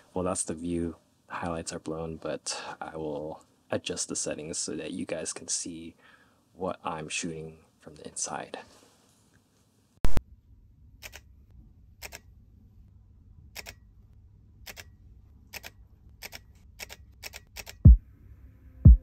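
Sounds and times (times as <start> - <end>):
camera clicks: 11.0 - 11.3, 13.6 - 13.8, 14.6 - 14.9, 15.5 - 17.8.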